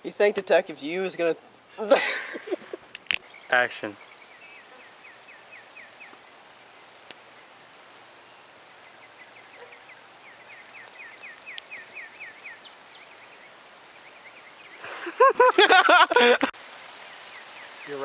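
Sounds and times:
bird chirping: 0:02.5 - 0:15.2, 0:17.1 - 0:18.0.

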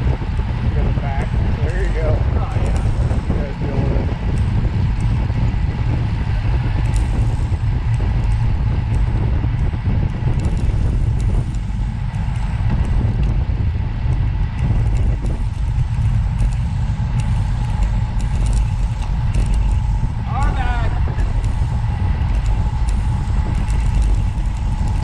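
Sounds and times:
moving vehicle rumble: 0:00.0 - 0:25.0
faint clicks: 0:06.4 - 0:13.4, 0:14.1 - 0:25.0.

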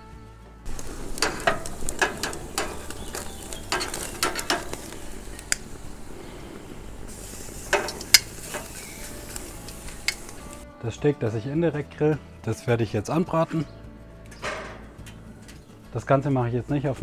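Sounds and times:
metal tongs clicking on grate: 0:00.7 - 0:05.7, 0:07.7 - 0:10.6
steak sizzling on grill: 0:00.7 - 0:10.6.

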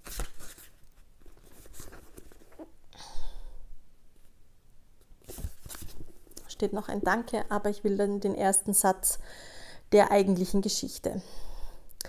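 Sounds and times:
book pages being leafed through: 0:00.0 - 0:02.7, 0:05.2 - 0:06.2.

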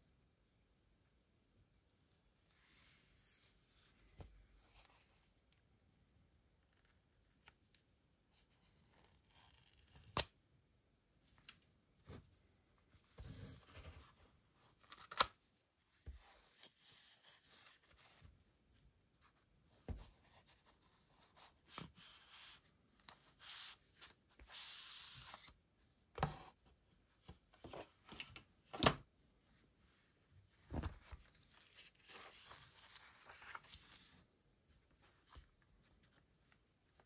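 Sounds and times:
paper sliding rustle: 0:30.5 - 0:34.2.

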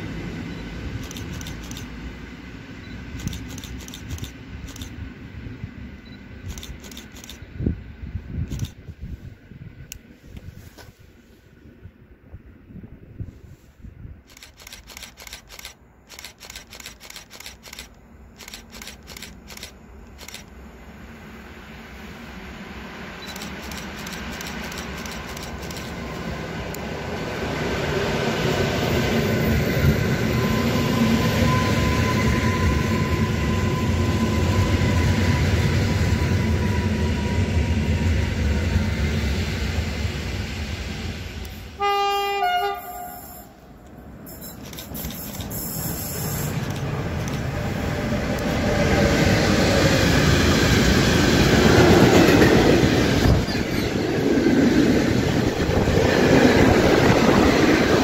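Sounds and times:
electric train rumble: 0:00.0 - 0:58.0
train motor whine: 0:00.2 - 0:05.0, 0:06.2 - 0:07.7, 0:08.4 - 0:08.8, 0:14.3 - 0:27.2, 0:28.7 - 0:54.0
two-tone locomotive horn: 0:30.4 - 0:38.4, 0:41.7 - 0:43.7.

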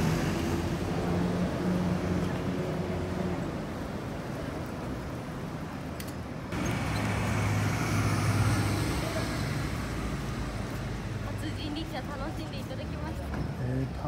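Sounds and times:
vehicle passing close by: 0:06.6 - 0:11.6.

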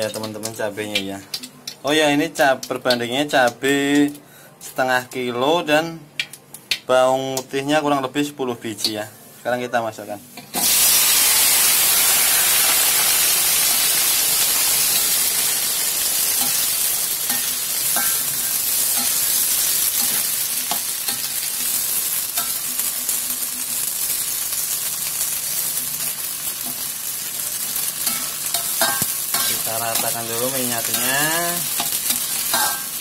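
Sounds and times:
hot oil sizzling in a wok: 0:00.0 - 0:05.1, 0:10.2 - 0:33.0
spatula tapping a wok: 0:17.3 - 0:19.4, 0:28.0 - 0:30.2, 0:30.9 - 0:33.0.

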